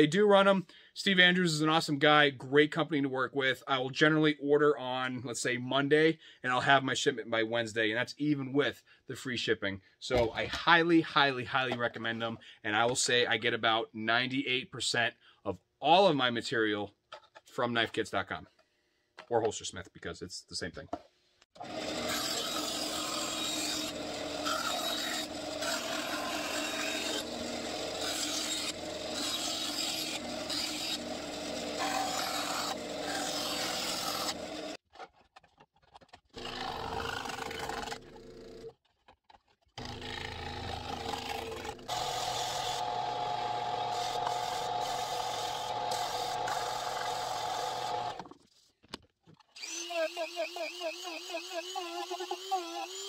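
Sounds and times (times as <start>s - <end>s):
power tool rasping on plastic: 21.6s - 34.8s, 36.0s - 38.6s, 39.7s - 48.2s, 49.6s - 53.0s.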